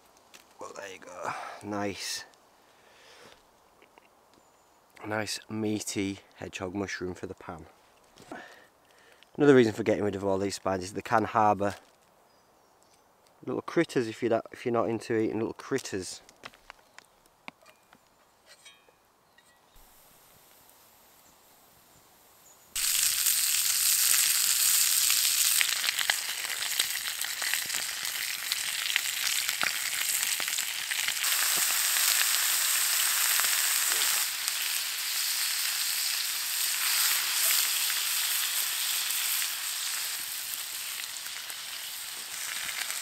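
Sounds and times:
meat sizzling in a pan: 22.3 - 43.0.

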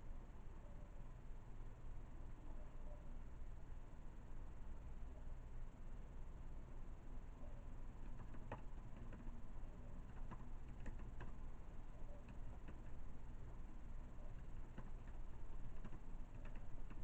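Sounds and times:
low room hum: 0.0 - 17.0
keyboard clicks of slow typing: 8.0 - 17.0.

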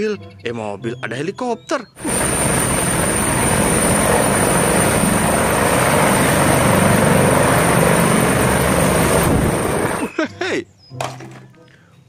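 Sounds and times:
helicopter rotor chop: 2.0 - 10.1
high turbine whine: 2.0 - 10.1.

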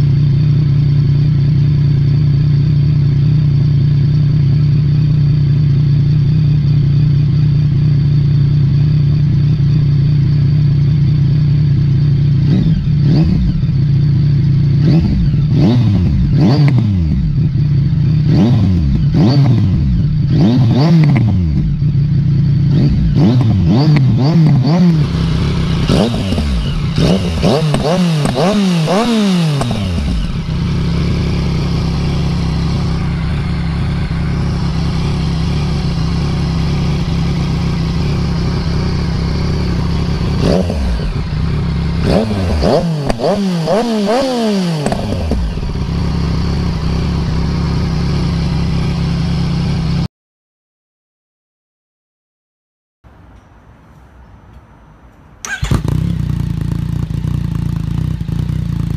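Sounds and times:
motorcycle engine idling: 0.0 - 50.1, 55.4 - 58.9
motorcycle engine revving: 0.0 - 50.1, 55.4 - 58.9.

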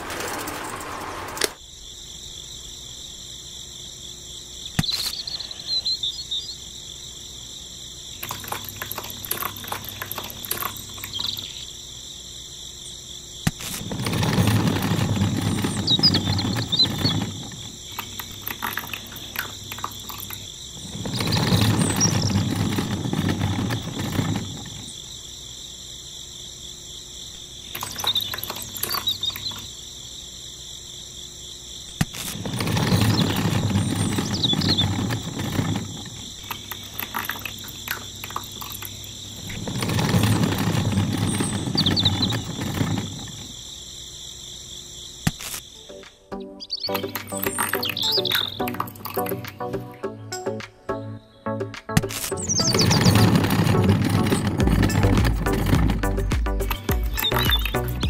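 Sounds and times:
crickets chirring: 0.0 - 51.4, 52.1 - 58.0
handling clicks and rattles: 8.2 - 11.5, 13.5 - 25.0, 27.7 - 29.7, 32.1 - 43.5, 46.9 - 49.9, 52.0 - 58.0.

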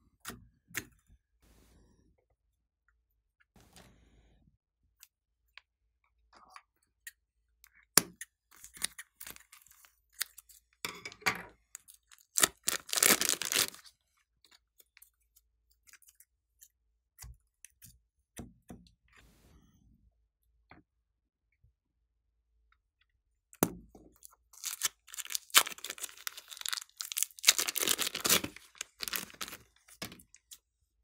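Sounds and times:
slime squishing and crackling: 8.5 - 10.6, 11.8 - 13.9, 24.3 - 30.6.

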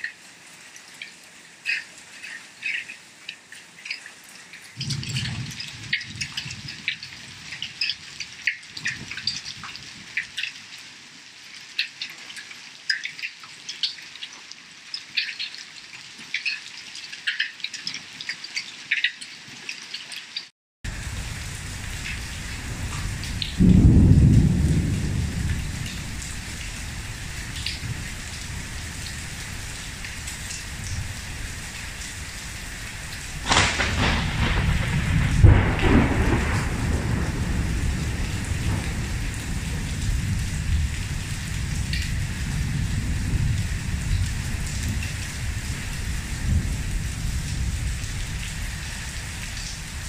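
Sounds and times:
heavy rain pouring: 0.0 - 19.5, 20.2 - 50.0
sharp thunderclap: 4.8 - 6.8, 20.9 - 50.0
thunder rumbling: 4.8 - 7.4, 20.9 - 50.0.

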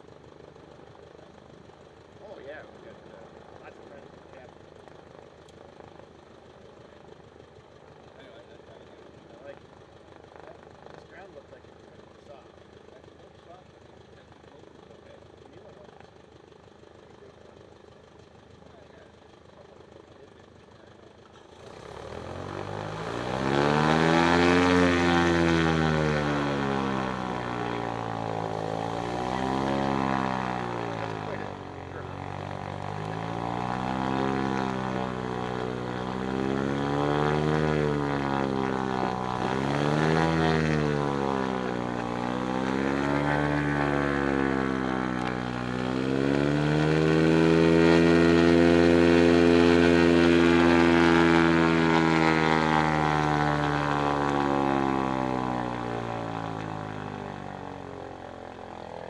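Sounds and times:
aircraft engine and propeller: 0.0 - 59.0.

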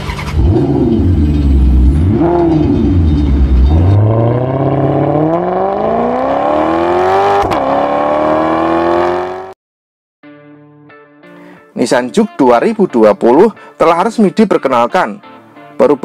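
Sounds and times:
car engine revving: 0.0 - 9.6.

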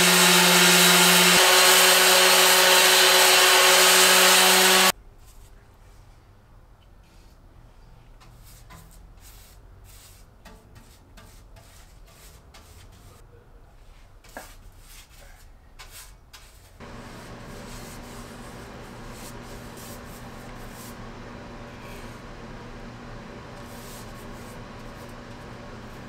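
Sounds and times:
paintbrush bristle swishes: 14.3 - 21.0, 23.7 - 25.2
steady low hum: 16.8 - 26.0.

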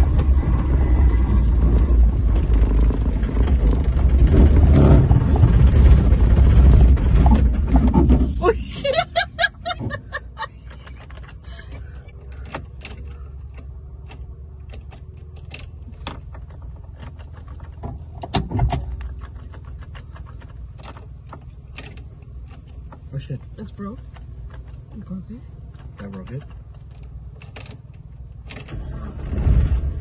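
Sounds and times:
car engine rumbling: 0.0 - 30.0
light clicks and rattles: 9.7 - 28.7.

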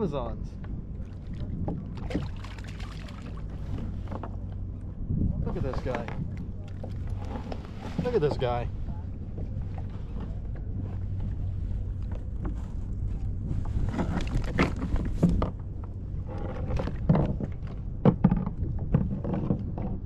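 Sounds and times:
wind rumbling on microphone: 0.0 - 20.0
water splashing: 1.0 - 4.0.

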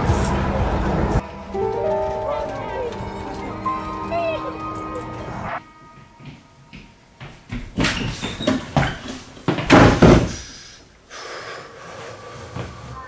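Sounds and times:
thuds on wooden door: 9.5 - 10.4.

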